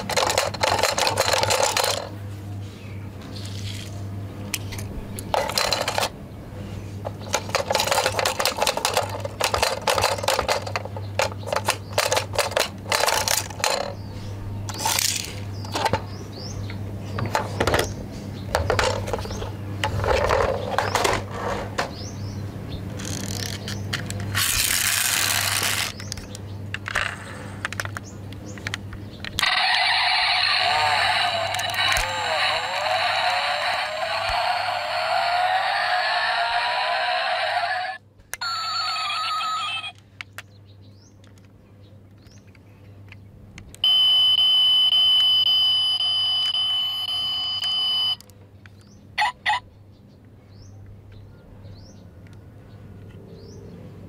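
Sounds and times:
plastic toy cars clattering: 0:00.0 - 0:02.2, 0:04.5 - 0:06.2, 0:07.0 - 0:14.0, 0:14.7 - 0:16.0, 0:18.5 - 0:21.9, 0:23.0 - 0:29.8, 0:30.6 - 0:34.4
steady low hum: 0:00.0 - 0:38.4.

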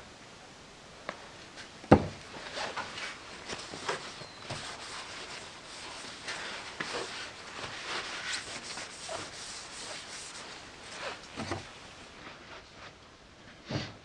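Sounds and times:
paper towel rubbing on steel shaft: 0:02.5 - 0:11.8.

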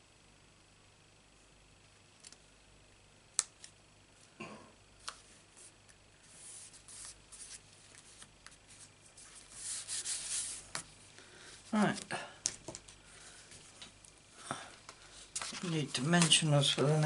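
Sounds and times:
paper rustling: 0:05.0 - 0:10.9, 0:14.9 - 0:17.0.

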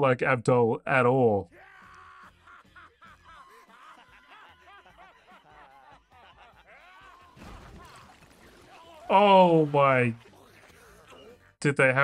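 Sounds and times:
cartoon character snickering: 0:10.2 - 0:11.6.

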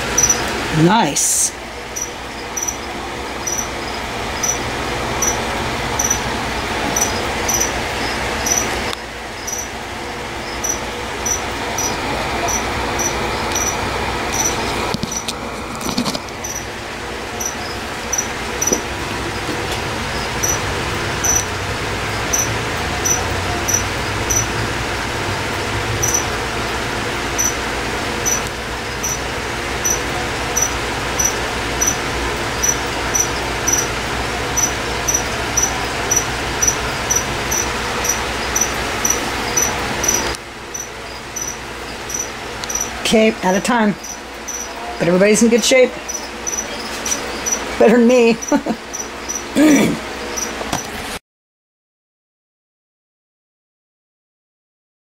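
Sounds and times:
cricket chirping: 0:00.0 - 0:00.5, 0:01.9 - 0:06.3, 0:06.9 - 0:16.7, 0:17.3 - 0:19.4, 0:20.1 - 0:20.6, 0:21.2 - 0:21.5, 0:22.1 - 0:24.6, 0:26.0 - 0:26.4, 0:27.3 - 0:27.6, 0:28.2 - 0:45.2, 0:46.0 - 0:49.6, 0:50.2 - 0:50.6.

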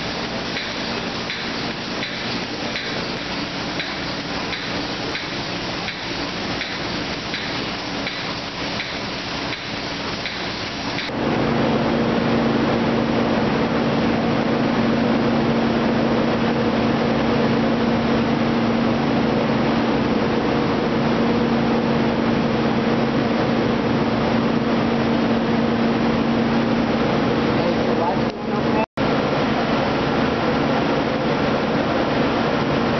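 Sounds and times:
industrial hiss: 0:00.0 - 0:11.1
low machine hum: 0:00.0 - 0:32.9.

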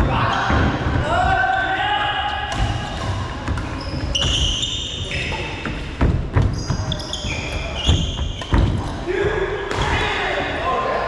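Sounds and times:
shoes squeaking on court floor: 0:03.0 - 0:09.1
footwork thuds: 0:05.1 - 0:10.1.

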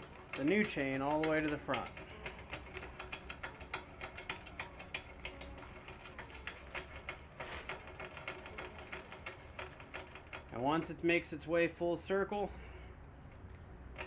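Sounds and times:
roller chain clicking: 0:00.0 - 0:11.8.

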